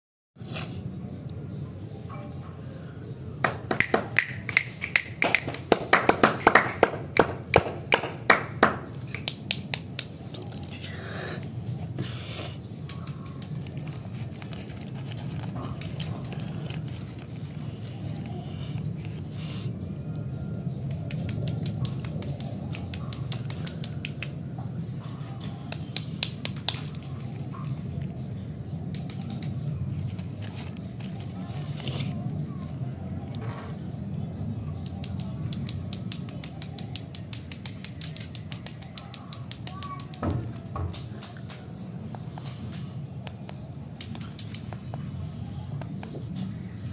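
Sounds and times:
plastic wrappers crinkling: 13.3s - 19.3s, 29.8s - 32.8s
fingers tapping and clicking: 20.8s - 24.4s, 34.8s - 45.1s.

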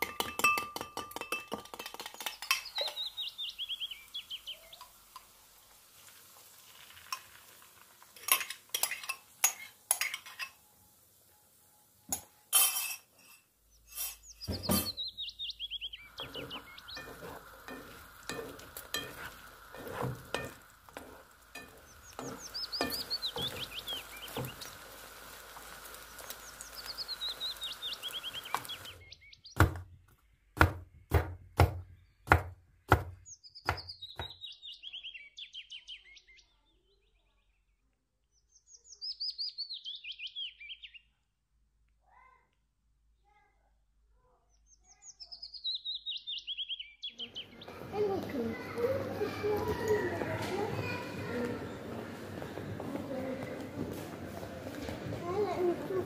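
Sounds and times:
food sizzling in pan: 1.6s - 29.1s, 47.2s - 56.0s
bird singing falling trill: 2.2s - 5.0s, 13.7s - 19.7s, 21.4s - 24.8s, 25.8s - 29.6s, 31.8s - 36.5s, 38.6s - 41.1s, 44.9s - 51.8s
spoon scraping pan: 6.3s - 10.7s, 16.1s - 28.9s
cutter chopping on wooden board: 30.6s - 34.4s.

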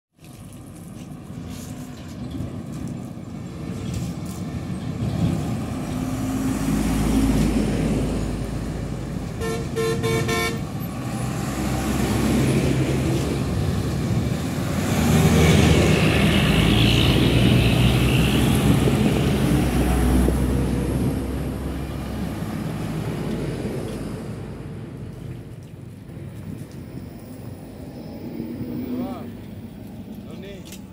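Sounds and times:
diesel trucks driving past: 0.4s - 30.9s
horn short blasts: 9.4s - 10.6s.

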